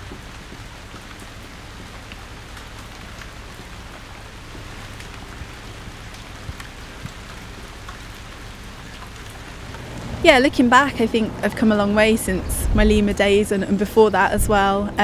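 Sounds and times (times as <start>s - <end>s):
steady rain: 0.0s - 15.0s
low rumble: 9.2s - 15.0s.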